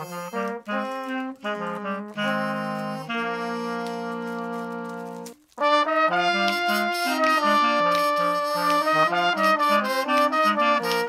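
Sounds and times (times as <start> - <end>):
brass instruments holding a chord: 0.0 - 11.0.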